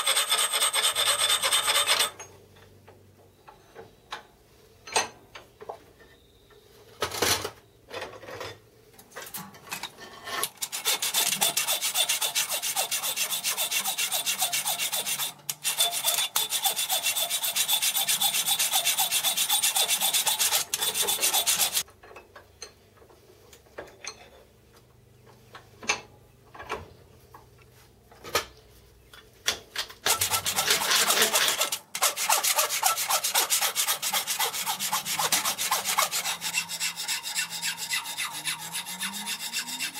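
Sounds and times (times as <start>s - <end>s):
hand file rasping on metal: 0.0s - 2.2s, 10.4s - 21.8s, 30.0s - 39.9s.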